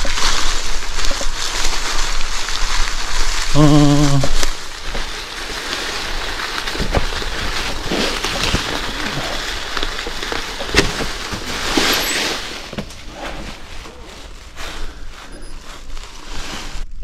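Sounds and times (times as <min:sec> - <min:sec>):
bike tyres crunching over stones: 0:00.0 - 0:17.0
bike knocking over stones: 0:04.3 - 0:14.9.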